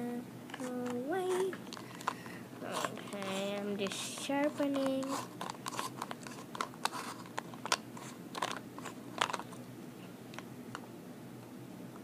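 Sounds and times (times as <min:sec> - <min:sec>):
pencil sharpener shaving wood: 0:00.6 - 0:07.4.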